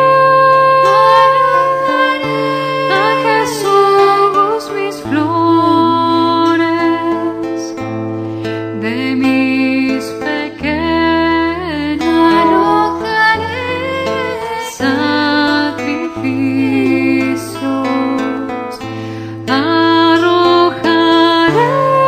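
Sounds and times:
instrumental accompaniment with bass: 5.2 - 22.0.

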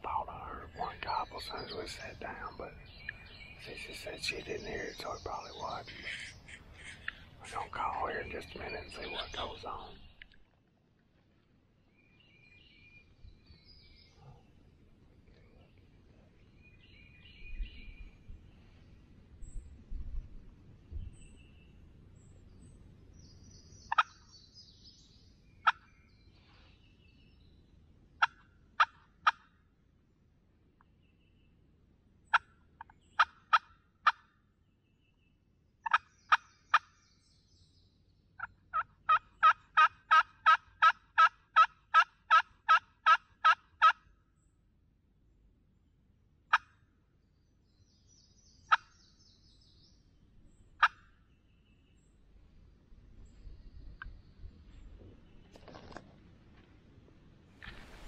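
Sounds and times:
turkey call yelps: 38.7 - 44.0.

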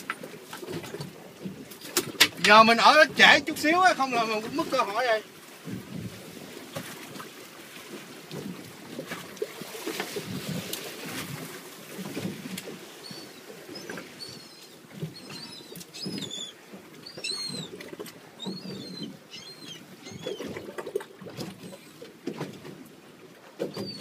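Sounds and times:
water splashing against boat hull: 0.0 - 24.0
high chirping squeaks: 17.1 - 17.7, 18.4 - 20.4.

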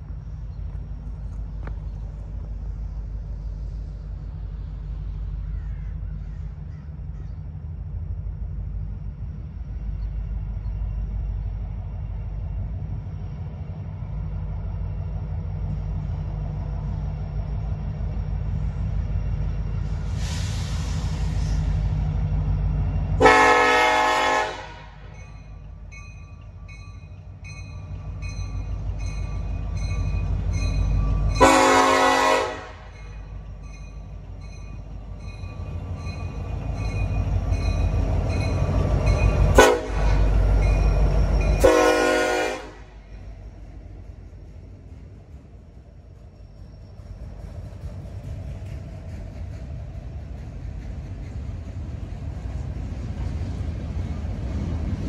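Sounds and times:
locomotive rumble: 0.0 - 55.0
train horn blasts: 23.2 - 25.2, 31.3 - 33.0, 39.5 - 40.4, 41.5 - 43.0.

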